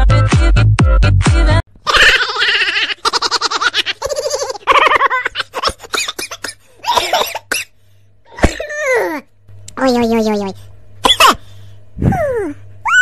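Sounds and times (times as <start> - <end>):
dance music with heavy beat: 0.0 - 1.6
person giggling and laughing: 1.8 - 6.4.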